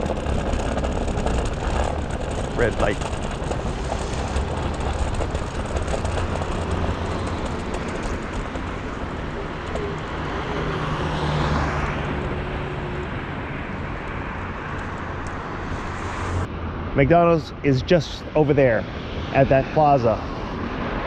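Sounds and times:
passing traffic: 0.0 - 21.0
road noise: 0.0 - 21.0.

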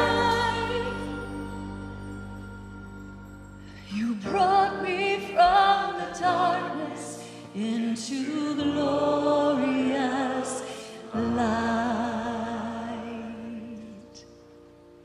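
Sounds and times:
woman singing with vibrato: 0.0 - 2.9, 3.8 - 14.0.

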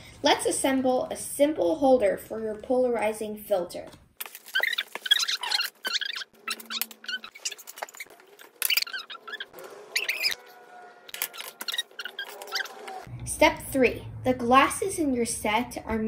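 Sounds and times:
plastic packaging crinkling: 4.2 - 9.4.

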